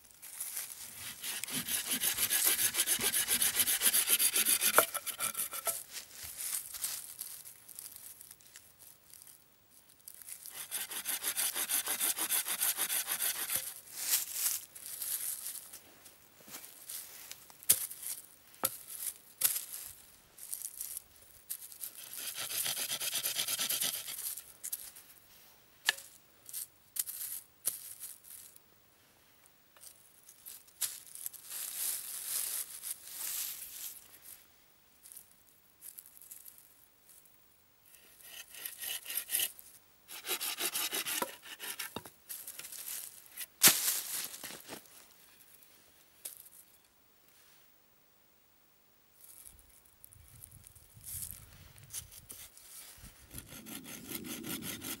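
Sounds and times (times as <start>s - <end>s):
dry leaves rustling: 0.0s - 2.9s, 3.8s - 11.0s, 12.8s - 22.4s, 29.9s - 34.4s, 35.0s - 36.7s, 42.3s - 45.6s
wooden sticks knocking and scraping: 1.0s - 6.1s, 17.7s - 19.8s.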